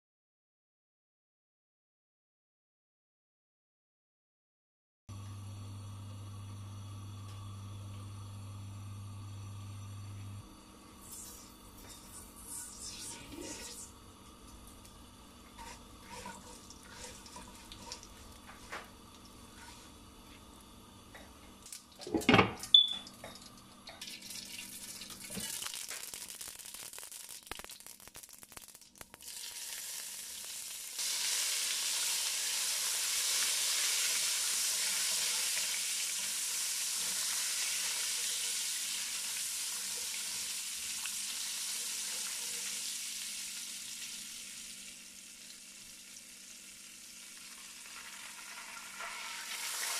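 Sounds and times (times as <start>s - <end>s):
seeds sizzling in hot oil: 10.5s - 20.9s, 24.0s - 49.9s.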